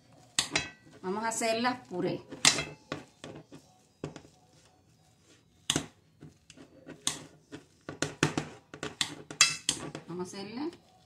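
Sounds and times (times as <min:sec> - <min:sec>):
potato masher knocking metal pot: 0:07.0 - 0:10.1.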